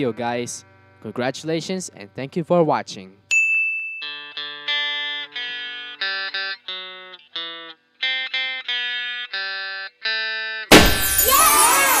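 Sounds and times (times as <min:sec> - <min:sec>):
electric guitar strumming chords: 0:04.2 - 0:10.7.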